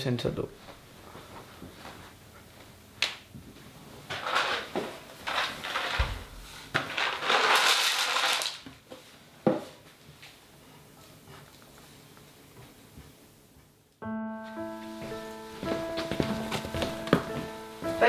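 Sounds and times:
plastic packet crinkling: 7.0 - 8.6.

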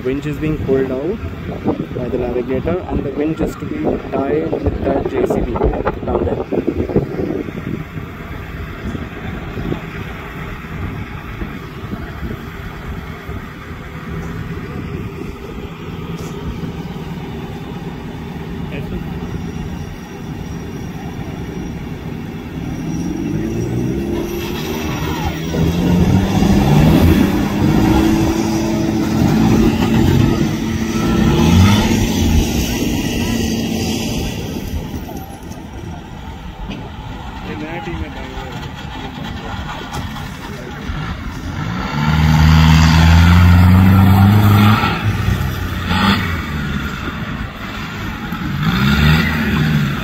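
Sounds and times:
engine idling: 0.0 - 22.9, 32.2 - 41.8.

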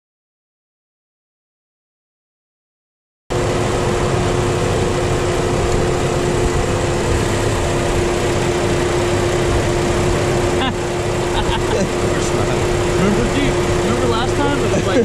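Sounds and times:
car engine idling: 3.3 - 15.0.

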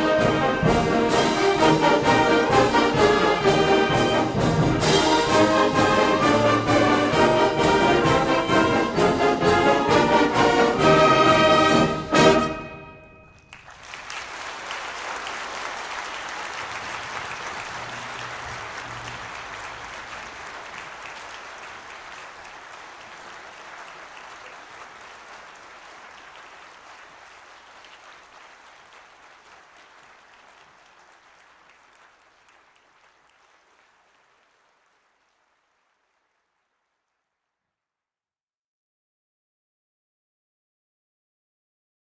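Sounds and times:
audience applauding: 13.2 - 37.3.

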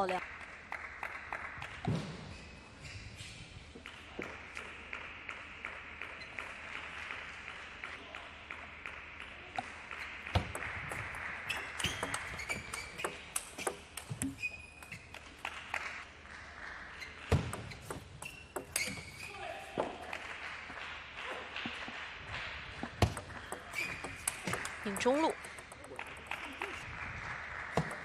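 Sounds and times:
ping pong ball clicking: 11.5 - 15.0, 17.3 - 19.1, 22.8 - 26.8.

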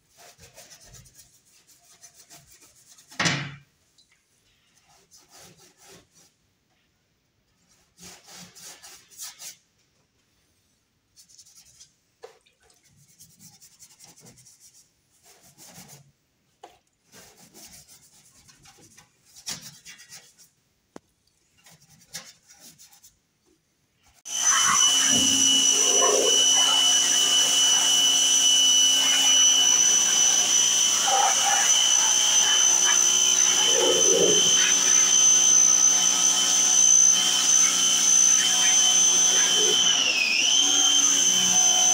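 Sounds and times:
sponge scrubbing: 0.0 - 3.2, 4.7 - 6.4, 7.6 - 9.6, 11.1 - 16.2, 17.0 - 20.6, 21.4 - 23.2, 24.0 - 36.0
pressure washer whine and spray hiss: 24.3 - 41.9.

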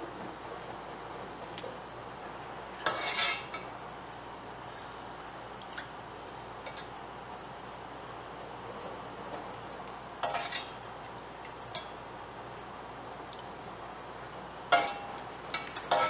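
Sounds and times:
metal utensil clinking on pot: 14.7 - 16.0
utensil clatter: 14.7 - 16.0.

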